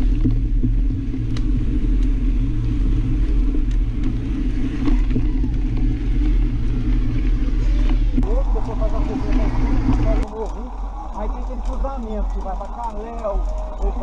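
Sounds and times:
wind on microphone: 0.0 - 11.8
bike tyre and frame vibration: 0.0 - 14.0.

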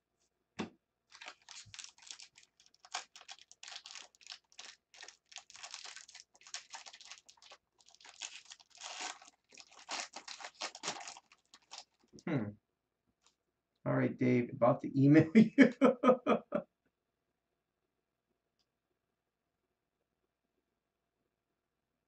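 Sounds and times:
foil wrapper crinkling and tearing: 1.1 - 12.2.

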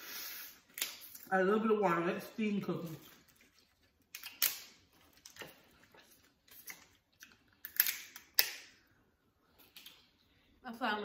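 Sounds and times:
crab shells cracking: 4.0 - 5.5, 6.5 - 8.7.

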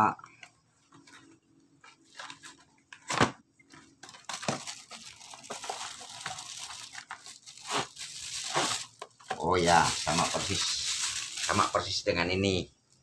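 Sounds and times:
rustling and crinkling wrapping: 0.5 - 12.2
cardboard packaging ripping: 4.1 - 11.9.

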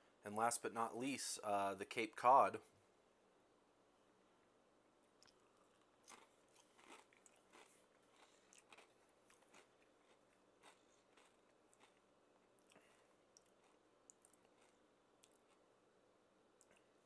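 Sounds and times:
potato chip crunching: 5.2 - 15.6.

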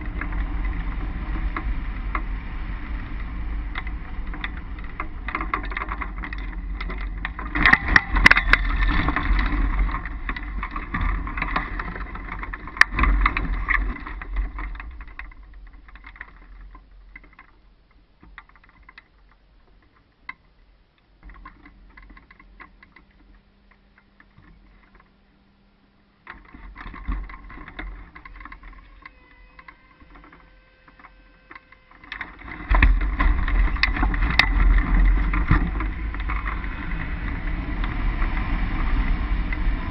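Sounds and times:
wind buffeting microphone: 0.0 - 17.3, 32.1 - 39.9.

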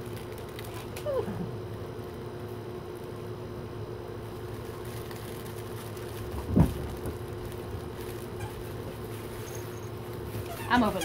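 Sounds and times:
room noise hum: 0.0 - 11.0.

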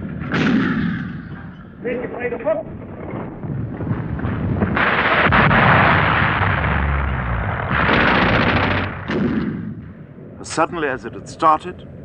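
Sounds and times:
gunfire and shell blasts: 0.0 - 1.6.

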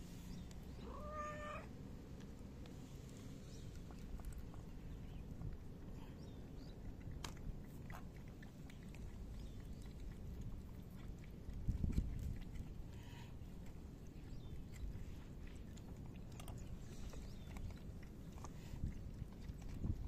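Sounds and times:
steady low rumble: 0.0 - 20.0
cat meowing: 0.8 - 1.7.

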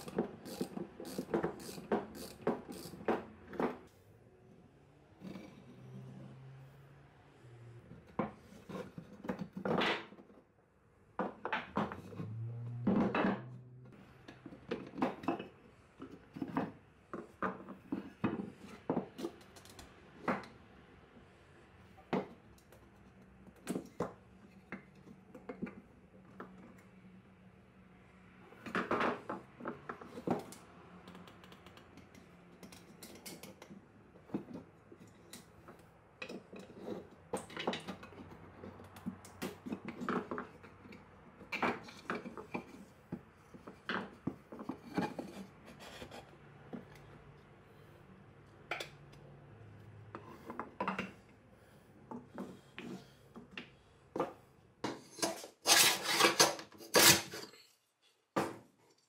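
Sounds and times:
screwdriver scraping painted wood: 0.0 - 3.7, 55.0 - 57.6.

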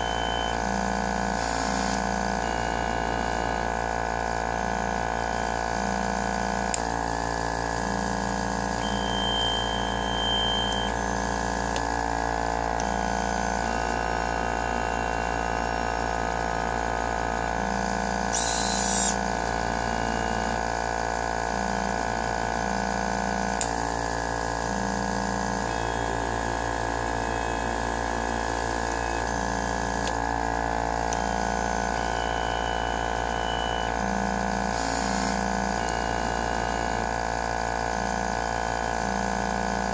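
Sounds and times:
machine mechanical hum: 0.0 - 39.9
low tone switching on and off: 6.7 - 12.0, 27.8 - 30.3.

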